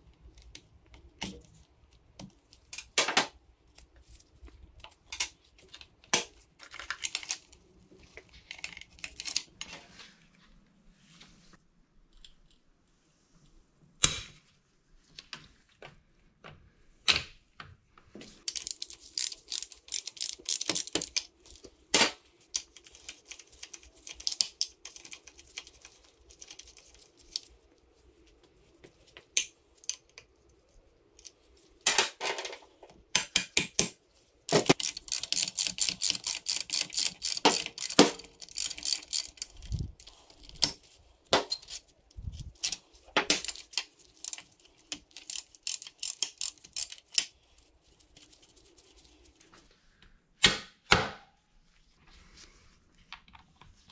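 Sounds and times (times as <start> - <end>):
hand ratchet clicking: 18.5 - 21.6, 34.5 - 40.7, 42.5 - 47.3.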